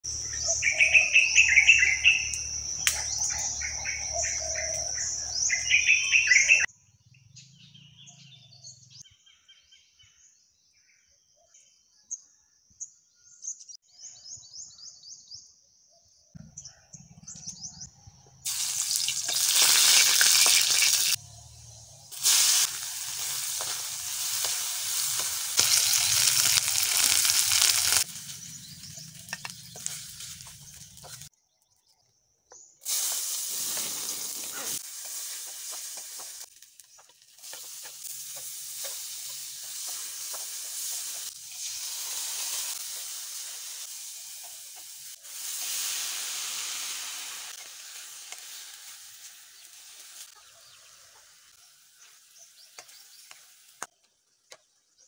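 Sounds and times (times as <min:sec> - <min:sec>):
birds chirping: 0:00.1 - 0:12.0, 0:13.9 - 0:41.4
food sizzling in hot oil: 0:18.5 - 0:31.3, 0:32.8 - 0:53.9.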